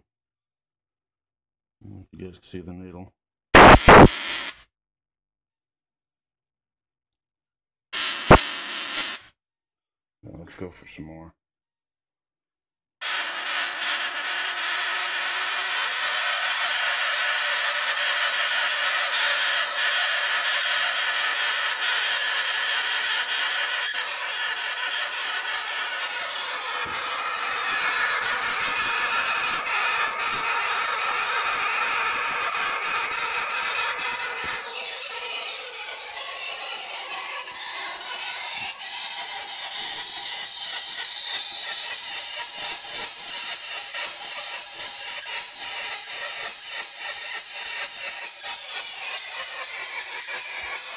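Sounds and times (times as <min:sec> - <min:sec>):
tesla coil arcs hissing and buzzing: 0:03.6 - 0:04.6, 0:08.0 - 0:09.3, 0:13.0 - 0:50.9.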